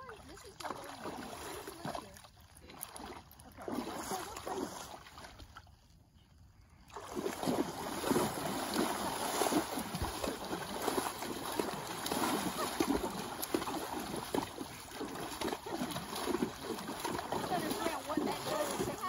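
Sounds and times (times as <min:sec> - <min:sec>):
horses splashing in water: 0:00.0 - 0:05.9, 0:06.9 - 0:19.0.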